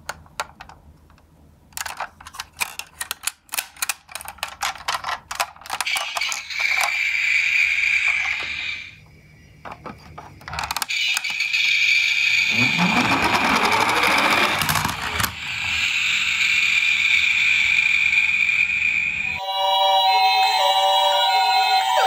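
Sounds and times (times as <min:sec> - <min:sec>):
toy gear mechanism clicking: 0:01.7 - 0:08.8, 0:10.4 - 0:17.3
toy motor whirring: 0:05.3 - 0:09.0, 0:10.5 - 0:18.7
plastic wheels rolling on floor: 0:12.6 - 0:15.4.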